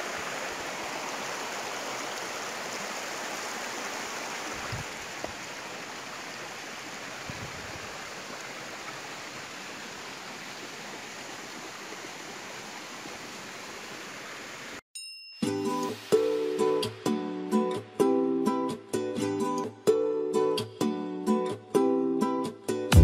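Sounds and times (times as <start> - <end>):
stream rushing over rocks: 0.0 - 14.8, 15.8 - 16.8.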